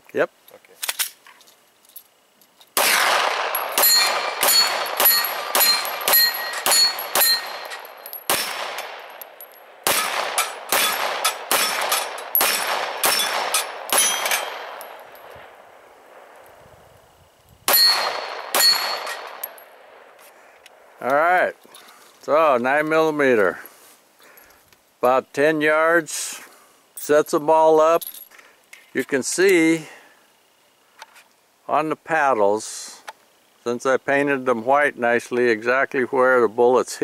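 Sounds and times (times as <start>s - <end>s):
pistol shots: 2.8s - 16.4s, 17.7s - 20.1s
bullets ringing on steel plates: 3.4s - 15.3s, 17.7s - 19.8s.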